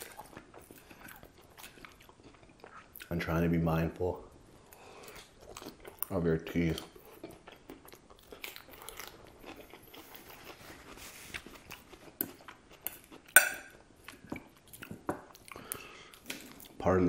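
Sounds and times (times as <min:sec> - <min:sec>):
chewing lettuce salad: 0:00.0 - 0:03.5, 0:04.7 - 0:16.8
fork clinking on plate: 0:13.4 - 0:13.8.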